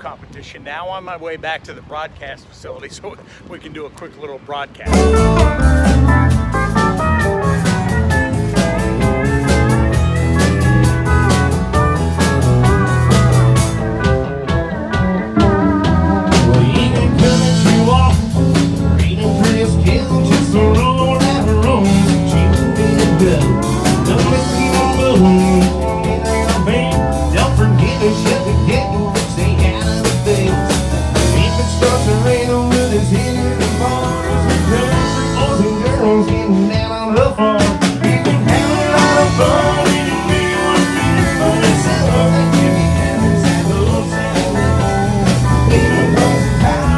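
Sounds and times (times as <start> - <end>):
live rock band playing: 4.8 - 46.9
man singing: 16.3 - 46.9.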